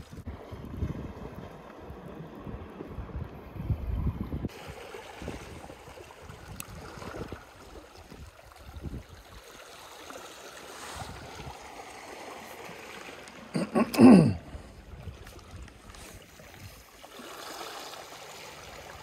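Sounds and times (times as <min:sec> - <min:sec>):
small waves lapping rocky shore: 0:04.5 - 0:19.0.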